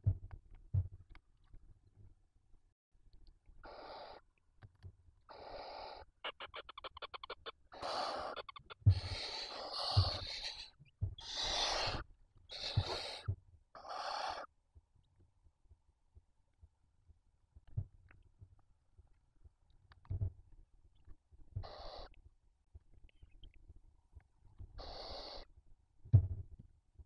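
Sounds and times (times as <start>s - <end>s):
barn owls hissing: 3.6s - 4.2s, 5.3s - 14.5s, 21.6s - 22.1s, 24.8s - 25.5s.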